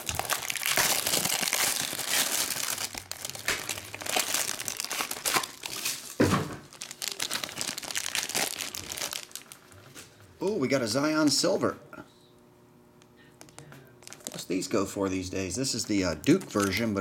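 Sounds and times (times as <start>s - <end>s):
foil pack crinkling: 0.0s - 9.9s, 14.0s - 14.7s, 16.2s - 17.0s
shrink wrap crinkling and tearing: 0.0s - 9.9s, 14.0s - 14.6s, 16.2s - 17.0s.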